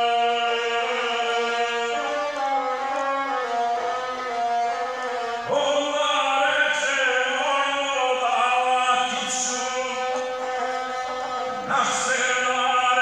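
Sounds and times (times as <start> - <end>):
bowed fiddle playing: 0.0 - 13.0
man chanting epic song: 5.4 - 10.2, 11.6 - 13.0.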